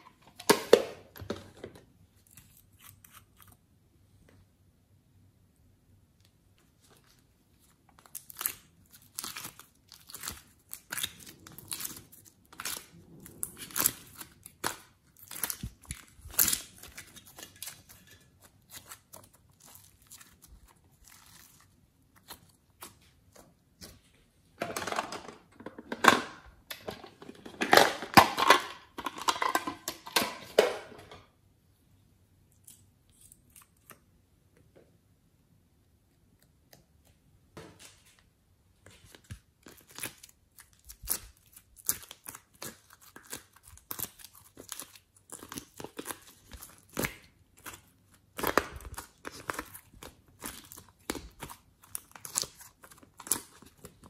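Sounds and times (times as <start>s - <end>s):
slime crackling and popping: 8.0s - 23.4s, 39.3s - 54.0s.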